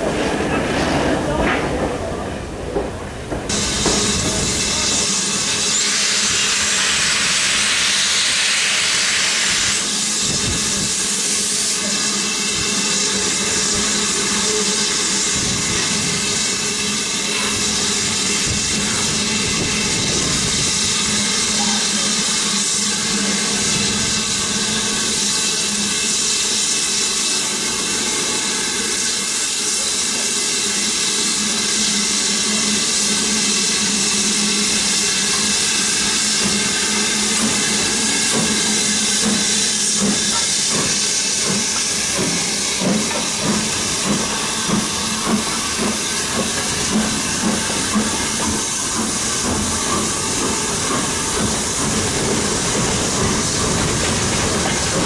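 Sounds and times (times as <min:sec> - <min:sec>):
steady hiss of steam: 0:03.4 - 0:55.0
steam locomotive cylinder cocks hissing: 0:03.4 - 0:55.0.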